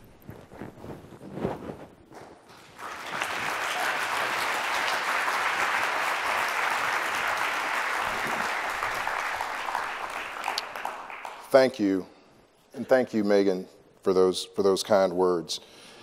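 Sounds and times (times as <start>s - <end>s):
audience applauding: 2.5s - 11.7s.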